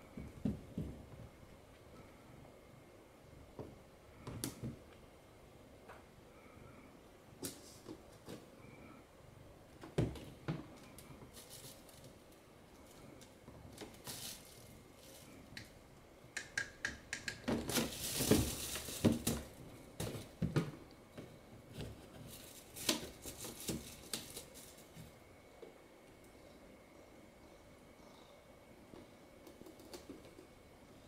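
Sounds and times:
cat rummaging in plastic box: 10.8 - 12.2, 13.7 - 15.4, 17.5 - 20.8, 21.7 - 25.2.

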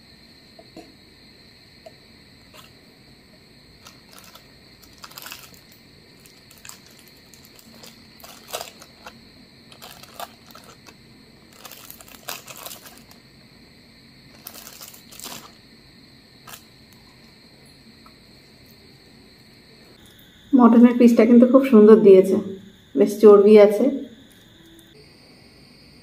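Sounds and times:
plastic bag crinkling: 3.8 - 13.2, 14.3 - 15.6, 16.4 - 16.7.

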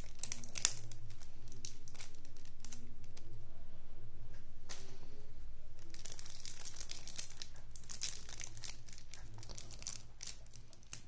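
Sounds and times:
plastic wrap crinkling and tearing: 0.0 - 3.3, 5.8 - 11.0
steady low hum: 0.0 - 11.0.

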